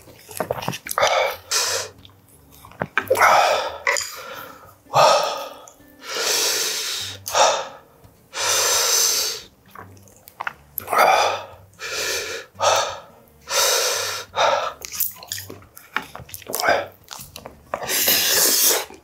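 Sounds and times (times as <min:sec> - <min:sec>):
man breathing hard: 0:03.2 - 0:09.5, 0:10.9 - 0:14.8.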